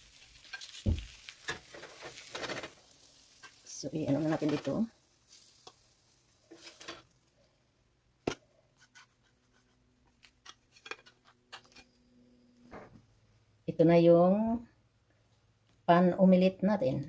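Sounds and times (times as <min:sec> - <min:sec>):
spatula scraping plate and pan: 0:01.4 - 0:04.9, 0:06.5 - 0:07.1, 0:08.8 - 0:12.0.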